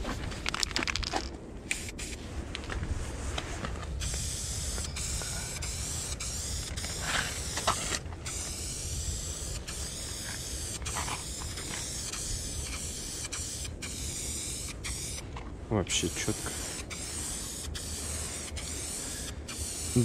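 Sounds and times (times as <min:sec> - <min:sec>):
spray paint can hissing: 0:01.7 - 0:02.2, 0:04.0 - 0:15.3, 0:15.9 - 0:20.0.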